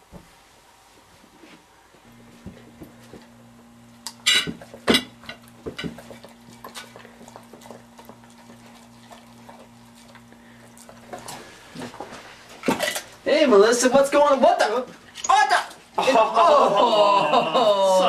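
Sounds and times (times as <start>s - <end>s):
steady low hum: 0.0s - 14.0s
plate and fork clinking: 4.2s - 6.0s.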